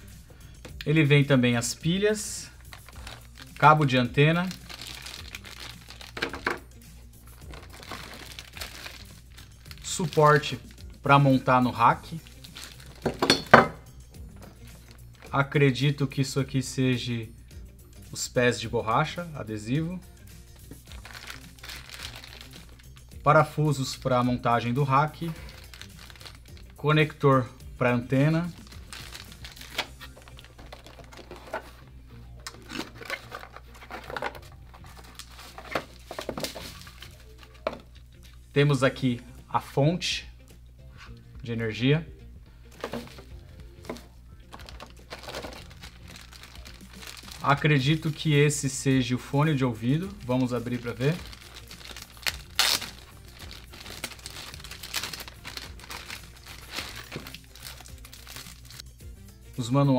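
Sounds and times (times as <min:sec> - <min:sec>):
quiet background music: 0:00.0 - 0:59.9
plastic bag crinkling: 0:02.6 - 0:06.6, 0:07.3 - 0:10.6, 0:12.1 - 0:13.4, 0:20.6 - 0:23.0, 0:25.2 - 0:26.8, 0:28.4 - 0:31.8, 0:32.6 - 0:37.9, 0:42.8 - 0:48.3, 0:49.8 - 0:58.8.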